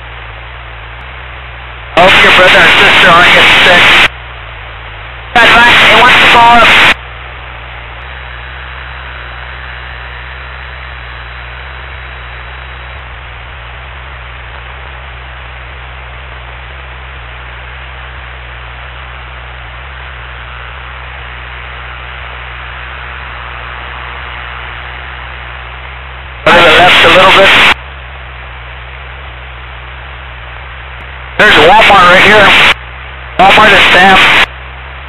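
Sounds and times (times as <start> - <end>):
airplane engine and propeller drone: 0.0 - 35.0
headset intercom hiss: 2.0 - 4.1, 5.4 - 7.0, 26.4 - 27.8, 31.4 - 32.8, 33.4 - 34.5.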